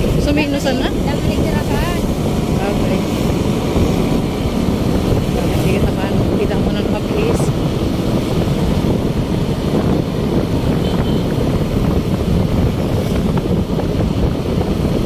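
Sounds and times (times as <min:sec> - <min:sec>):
motorcycle running: 0:00.0 - 0:15.0
road noise: 0:00.0 - 0:15.0
wind buffeting microphone: 0:00.0 - 0:15.0.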